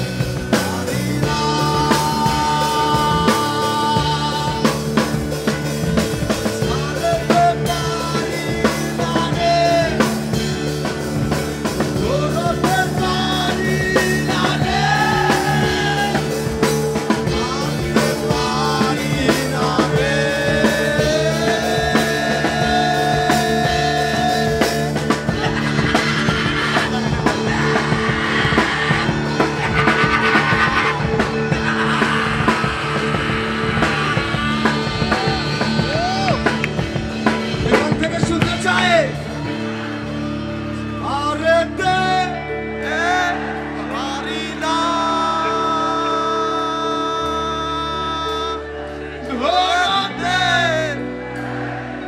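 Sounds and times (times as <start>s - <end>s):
drum kit beat: 0.0s - 42.3s
bending lead guitar melody: 0.0s - 52.0s
held guitar chords: 0.0s - 52.0s.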